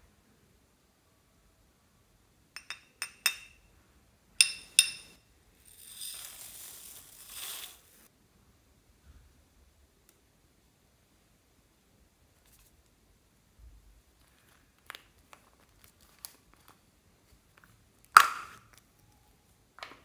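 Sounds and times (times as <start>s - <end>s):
ceramic scoops clinking: 2.6s - 3.7s, 4.4s - 5.2s
beads poured rustling patter: 5.6s - 8.1s.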